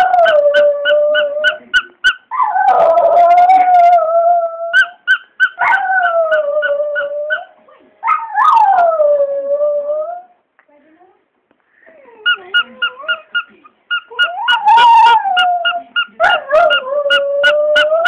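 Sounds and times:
dog howling: 0:00.0 - 0:01.6, 0:02.3 - 0:05.0, 0:05.6 - 0:10.3, 0:14.1 - 0:18.0
squeaky toy squeaking: 0:00.0 - 0:02.4, 0:04.8 - 0:07.6, 0:12.2 - 0:18.0.

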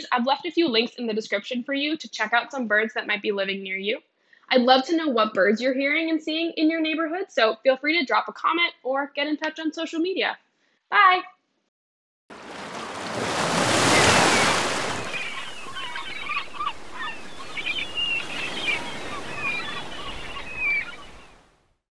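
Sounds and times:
surf waves: 0:12.3 - 0:21.5
bird chirps and calls: 0:13.9 - 0:21.4.

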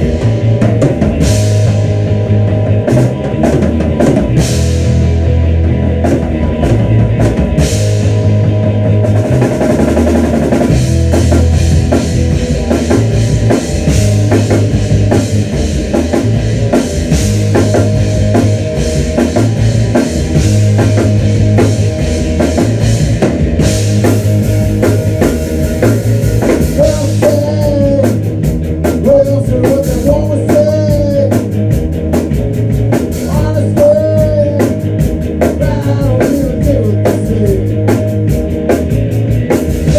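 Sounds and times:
rock band playing: 0:00.0 - 0:39.9.

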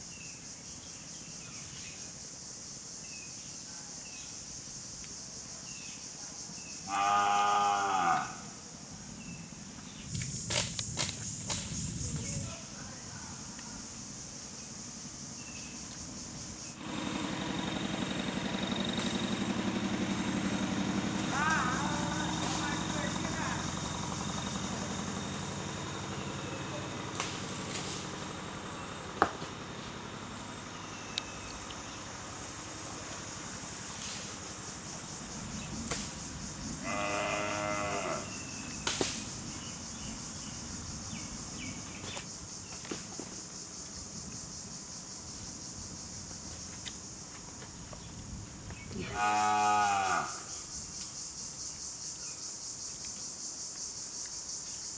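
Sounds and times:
high insect drone: 0:00.0 - 0:54.9
cow mooing: 0:06.9 - 0:08.4, 0:36.8 - 0:38.3, 0:49.0 - 0:50.5
engine idling: 0:16.7 - 0:36.8.

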